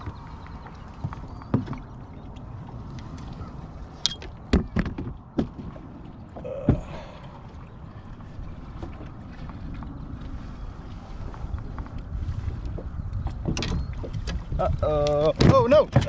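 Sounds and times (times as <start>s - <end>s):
wind and water rushing: 0.0s - 16.0s.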